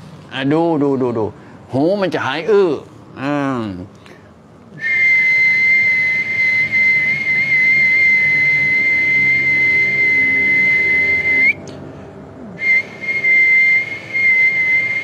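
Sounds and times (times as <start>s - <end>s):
man whistling high note: 4.8s - 11.6s, 12.5s - 15.0s.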